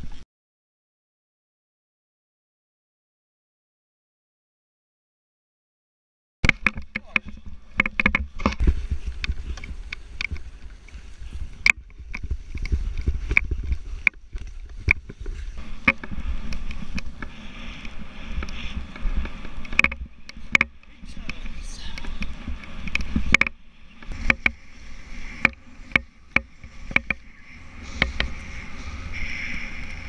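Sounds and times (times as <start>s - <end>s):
camera mount clicks and knocks: 6.5s - 8.6s
wind buffeting microphone: 6.7s - 30.0s
skis hissing through snow: 12.3s - 19.6s, 21.0s - 30.0s.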